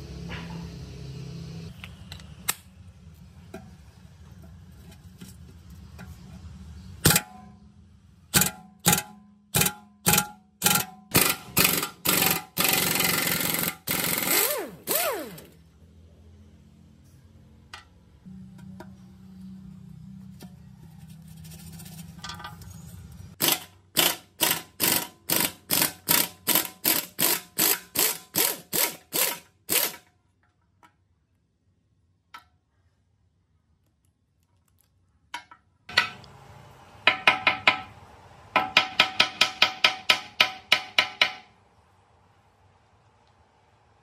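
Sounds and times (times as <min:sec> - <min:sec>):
ratchet wrench clicking: 0:09.6 - 0:15.4, 0:23.4 - 0:30.1.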